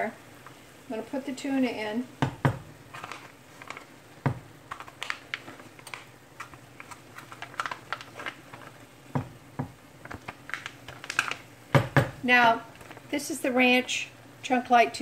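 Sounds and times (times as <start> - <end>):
foil pouch crinkling: 2.9 - 4.0, 4.6 - 11.6.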